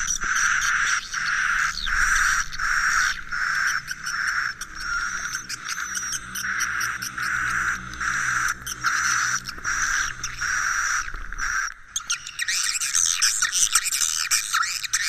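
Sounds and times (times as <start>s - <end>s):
buzzy bird chirps: 0.0s - 15.0s
twittering bird chorus: 0.0s - 15.0s.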